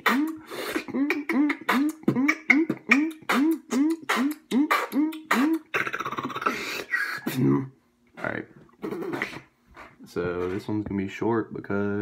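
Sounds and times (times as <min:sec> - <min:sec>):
beatboxing mouth pops: 0:00.0 - 0:07.5, 0:08.8 - 0:10.0
beatboxing raspy buzz: 0:00.0 - 0:10.0.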